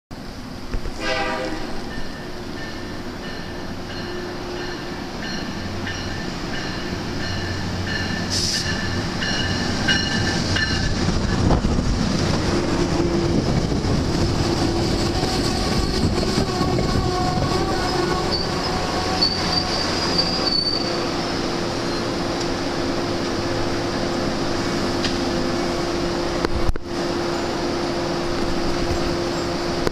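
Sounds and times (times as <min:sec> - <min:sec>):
train rolling along rails: 0:00.1 - 0:29.9
high wheel squeal: 0:14.5 - 0:22.2.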